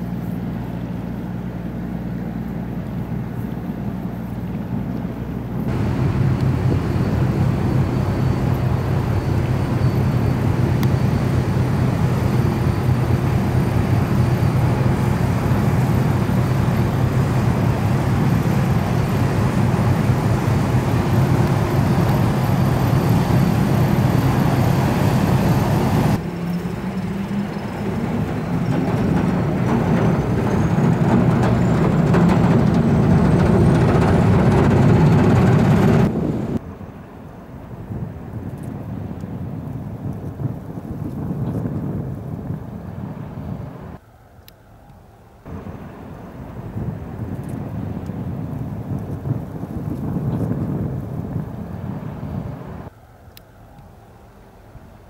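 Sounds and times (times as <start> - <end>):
ship diesel engine droning: 0.0 - 37.8, 45.2 - 48.3.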